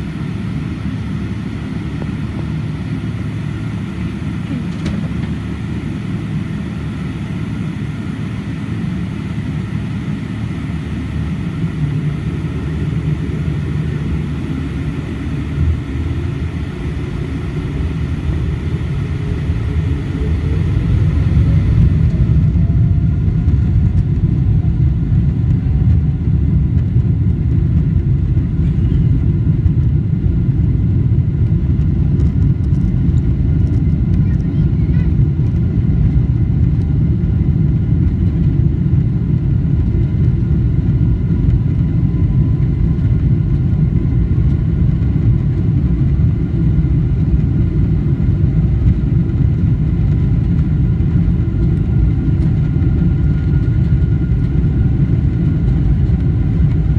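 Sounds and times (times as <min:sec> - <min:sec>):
jet engines rumbling: 0:00.0 - 0:56.9
jet engines spooling up: 0:09.8 - 0:30.8.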